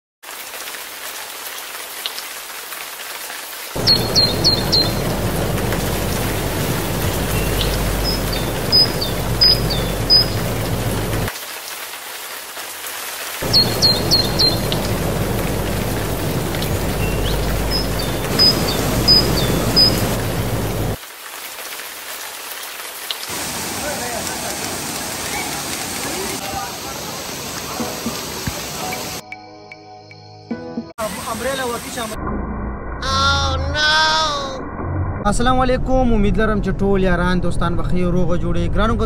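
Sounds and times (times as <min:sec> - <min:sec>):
waterfall rushing: 0:03.7 - 0:11.6, 0:13.4 - 0:21.0, 0:23.2 - 0:29.2
high bird chirps: 0:03.8 - 0:05.4, 0:06.9 - 0:11.3, 0:13.4 - 0:21.0.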